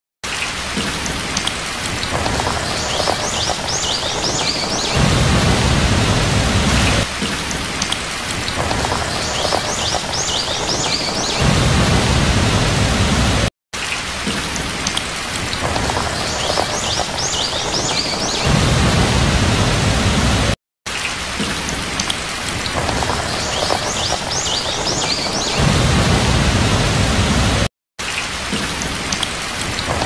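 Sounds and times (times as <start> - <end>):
heavy rain hissing: 0.6 - 13.5, 14.2 - 20.6, 21.3 - 27.7
thunder rumbling: 1.8 - 7.1, 8.3 - 13.5, 15.6 - 20.6, 22.5 - 27.7.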